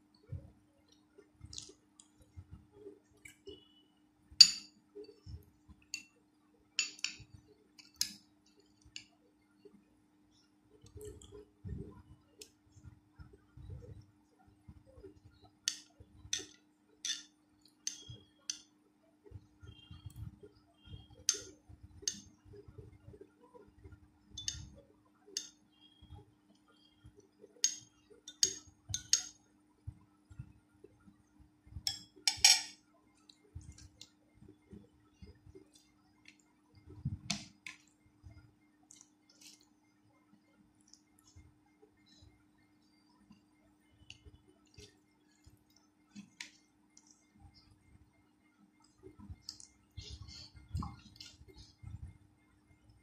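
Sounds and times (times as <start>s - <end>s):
soft eating sounds: 0.0s - 3.9s, 4.8s - 53.0s
faint steady hum: 0.0s - 53.0s
spoon clinking on ceramic plate: 4.4s - 4.8s, 6.8s - 7.2s, 16.4s - 17.3s, 24.4s - 24.7s, 31.9s - 32.8s
fingers squishing wet food: 48.7s - 52.2s.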